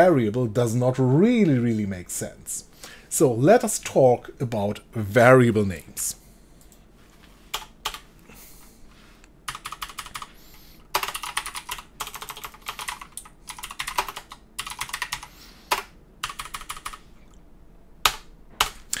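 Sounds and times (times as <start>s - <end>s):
typing on computer keyboard: 9.5s - 10.3s, 10.9s - 17.0s, 18.0s - 18.9s.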